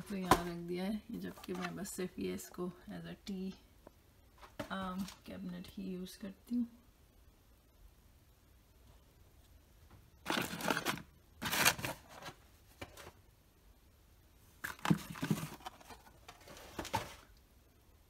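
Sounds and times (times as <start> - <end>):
cardboard packaging handling: 10.3 - 13.2, 14.6 - 17.3.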